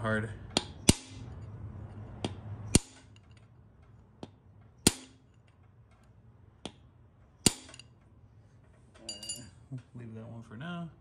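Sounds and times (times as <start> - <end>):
hammer striking metal: 0.5 - 1.5, 2.2 - 3.4, 4.7 - 5.4, 7.4 - 8.0.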